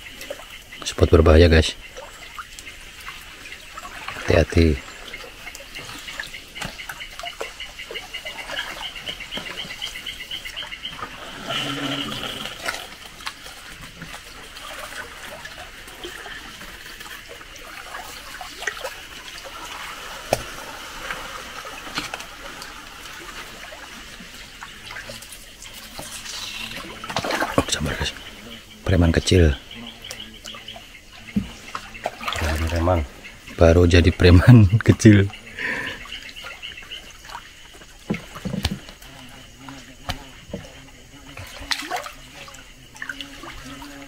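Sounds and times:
paddle splashing in water: 0:00.0 - 0:01.1, 0:01.7 - 0:44.0
pulsing animal trill: 0:07.6 - 0:13.0.

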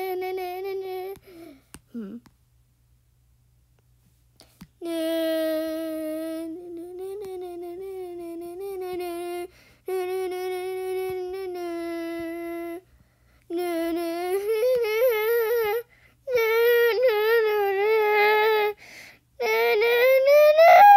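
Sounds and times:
person singing wordlessly: 0:04.8 - 0:12.8, 0:13.5 - 0:18.8, 0:19.4 - 0:20.9.

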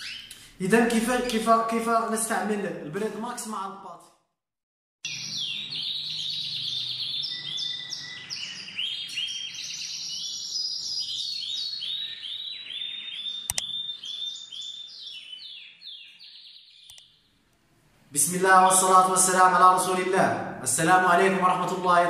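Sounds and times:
canary singing: 0:00.0 - 0:00.6, 0:05.0 - 0:17.4
sharp click: 0:13.5 - 0:13.7, 0:16.9 - 0:17.1.

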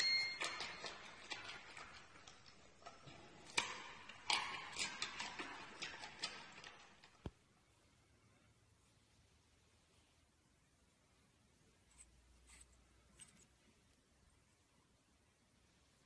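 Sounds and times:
panda chewing a raw carrot: 0:00.4 - 0:07.2.

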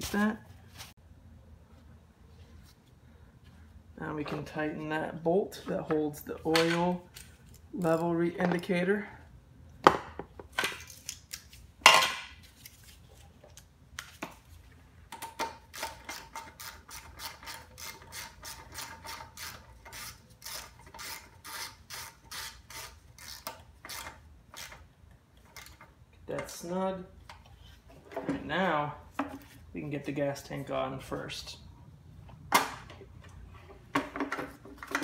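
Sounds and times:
hand ratchet clicking: 0:15.7 - 0:24.8.

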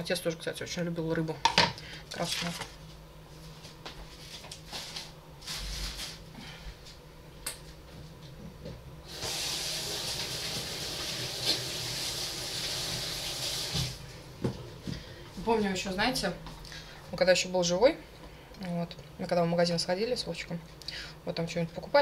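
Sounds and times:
tap water running into sink: 0:09.1 - 0:14.0.

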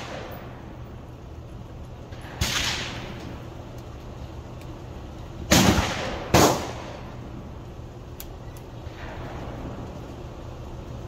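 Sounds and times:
gunshots with echo: 0:05.5 - 0:07.0.

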